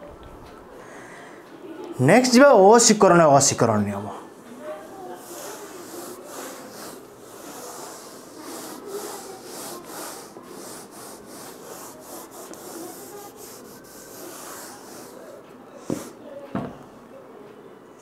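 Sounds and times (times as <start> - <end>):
duster wiping whiteboard: 4.8 - 16.2.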